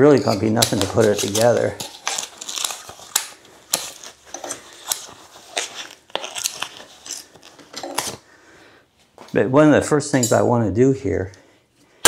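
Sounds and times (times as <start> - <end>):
foam packing crinkling: 0.0 - 8.2.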